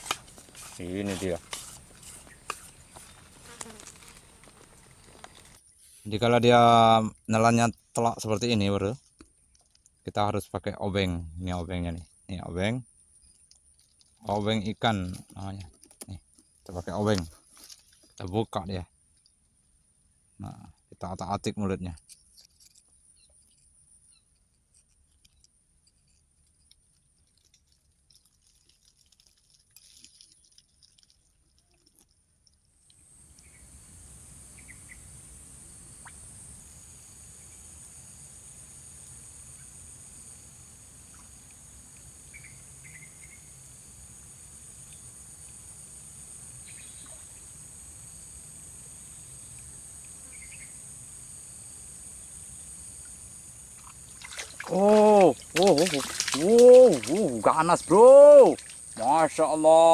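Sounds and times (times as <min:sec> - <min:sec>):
small clicks and light scraping: 0:00.0 - 0:06.0, 0:07.7 - 0:10.1, 0:13.2 - 0:18.4, 0:19.1 - 0:19.6, 0:21.9 - 0:33.5
high-pitched insect chorus: 0:00.0 - 0:09.1, 0:10.1 - 0:18.9, 0:32.8 - 0:59.9.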